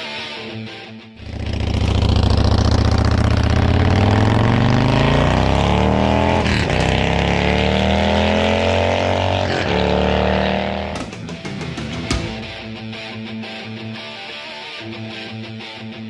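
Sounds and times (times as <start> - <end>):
motorcycle accelerating through gears: 1.2 - 11.2.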